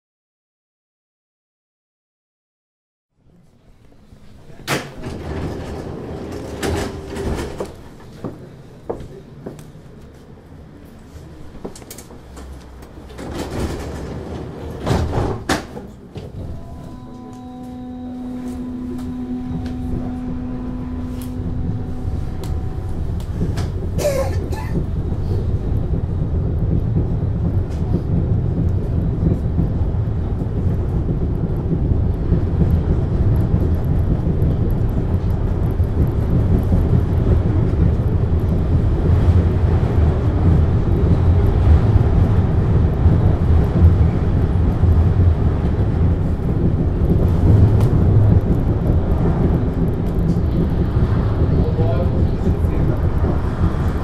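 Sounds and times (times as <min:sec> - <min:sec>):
rail car low rumble: 0:03.1 - 0:54.0
steady humming tone: 0:16.4 - 0:52.9.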